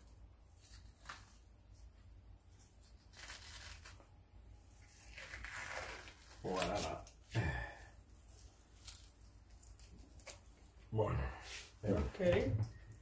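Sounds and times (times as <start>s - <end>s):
fish skin tearing rustle: 0.5s - 1.9s, 2.5s - 4.1s, 4.8s - 7.3s, 8.3s - 10.7s.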